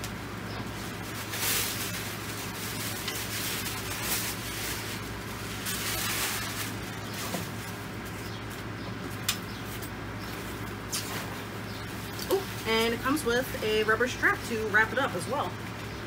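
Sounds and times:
plastic wrapping rustling: 0:00.6 - 0:13.0.

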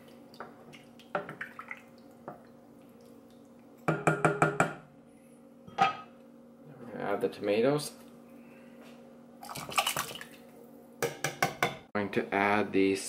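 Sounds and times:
spoon knocking against pan: 0:03.9 - 0:04.8, 0:11.0 - 0:11.9.

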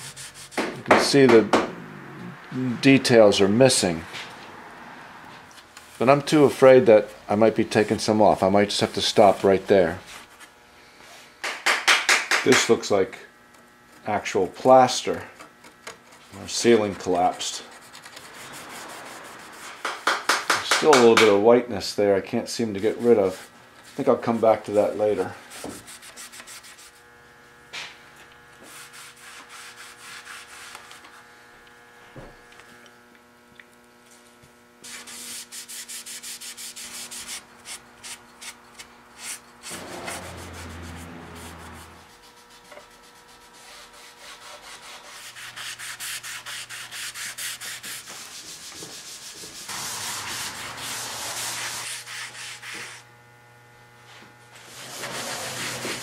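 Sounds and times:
rag rubbing wooden chair: 0:00.0 - 0:00.7, 0:22.8 - 0:27.0, 0:28.6 - 0:31.0, 0:39.2 - 0:53.0, 0:54.6 - 0:56.0.

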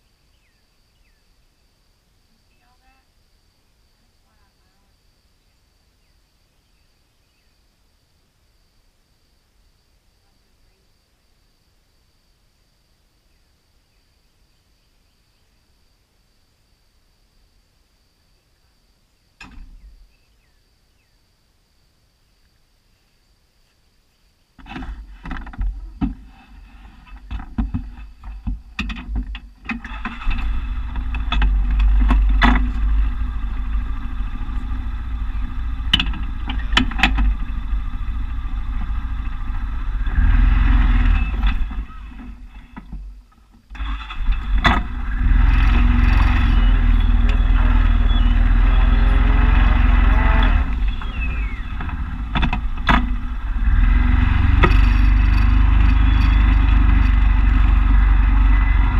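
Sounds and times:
clicks and rattles: 0:24.6 - 0:32.9, 0:35.8 - 0:37.4, 0:50.4 - 0:53.6
vehicle engine running: 0:29.8 - 0:58.9.

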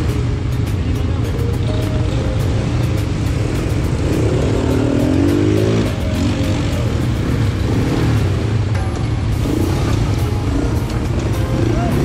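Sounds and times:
atv engines running: 0:00.0 - 0:12.0
engine revving: 0:02.7 - 0:08.7, 0:09.3 - 0:12.0.

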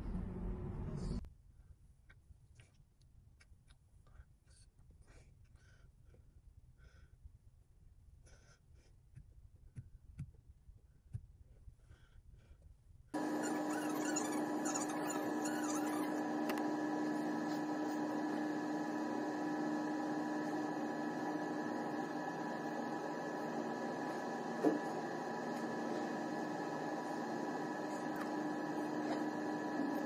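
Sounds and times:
ship machinery hum: 0:13.2 - 0:30.0.

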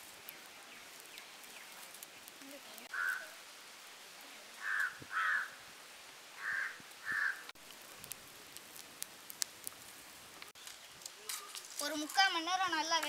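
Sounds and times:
wood fire crackling and popping: 0:00.0 - 0:13.0
crow cawing: 0:02.9 - 0:03.3, 0:04.6 - 0:05.6, 0:06.4 - 0:07.5.

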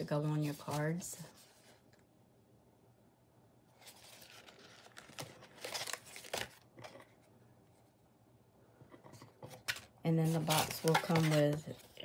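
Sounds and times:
card stock rustling: 0:03.8 - 0:07.2, 0:09.5 - 0:12.0.

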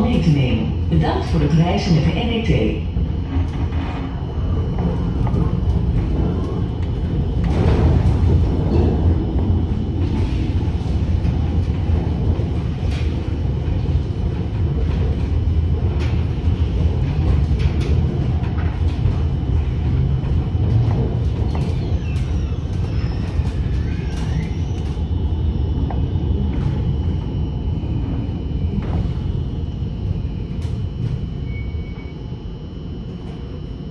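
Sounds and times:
tram wheels rumbling on rails: 0:00.0 - 0:33.9.

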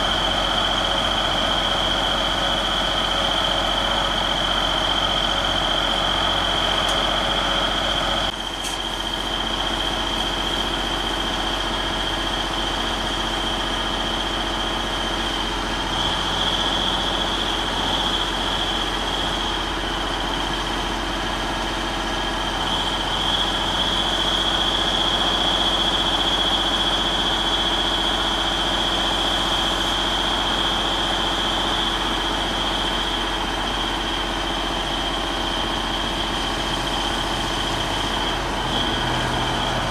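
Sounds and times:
diesel engine running: 0:00.0 - 0:39.9
high-pitched whine: 0:22.5 - 0:39.9.

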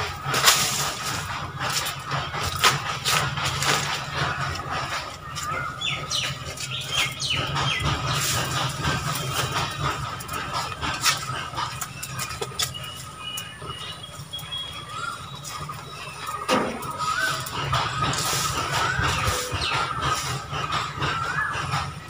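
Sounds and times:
sticks rustling: 0:00.3 - 0:07.1.

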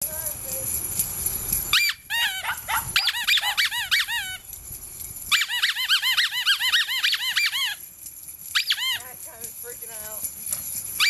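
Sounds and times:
small dog yipping: 0:01.7 - 0:04.6, 0:05.3 - 0:07.9, 0:08.5 - 0:09.2.

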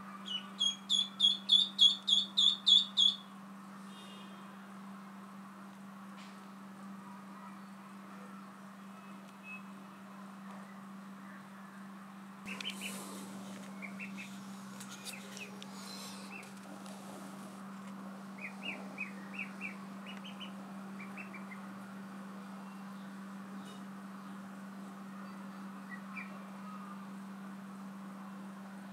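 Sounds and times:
ducklings peeping: 0:00.2 - 0:03.3, 0:12.5 - 0:16.7, 0:18.4 - 0:21.7, 0:25.9 - 0:26.3
steady low hum: 0:04.7 - 0:28.9
rustling: 0:12.5 - 0:18.0.

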